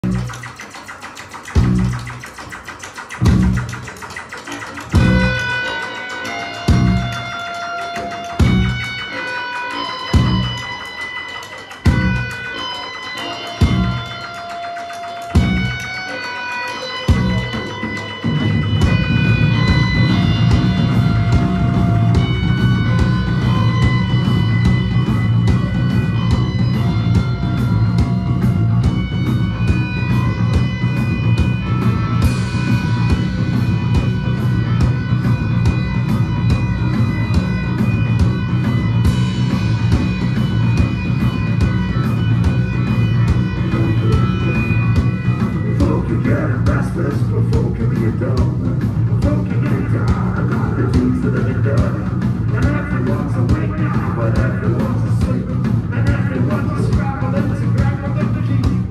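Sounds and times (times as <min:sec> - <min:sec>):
cymbals washing: 0:00.0 - 0:46.2
instrumental rock band playing: 0:00.0 - 0:58.9.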